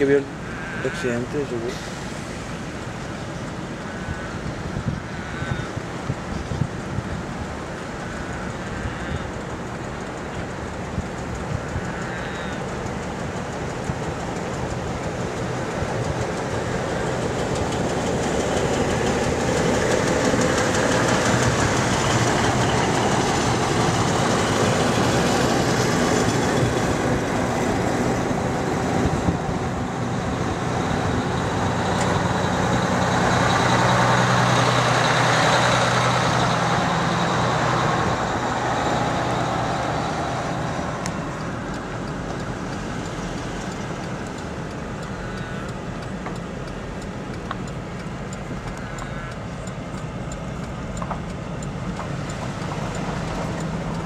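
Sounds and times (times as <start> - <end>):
vehicle engine and road rumble: 0.0 - 54.0.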